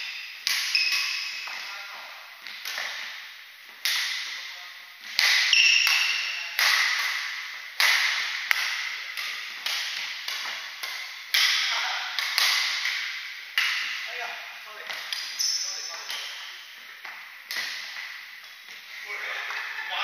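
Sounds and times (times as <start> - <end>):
rackets hitting shuttlecock: 0.0 - 1.8, 2.4 - 4.4, 5.0 - 14.2, 14.8 - 18.8.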